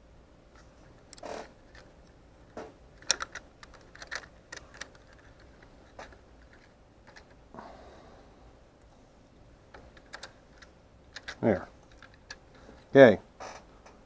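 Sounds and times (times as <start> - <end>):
plastic parts clicking and tapping: 0.6 - 7.4, 9.7 - 12.9.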